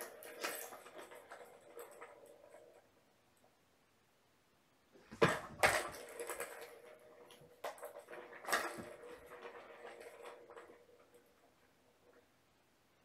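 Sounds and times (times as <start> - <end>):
plastic cat toy clattering: 0.0 - 2.8, 5.1 - 12.2.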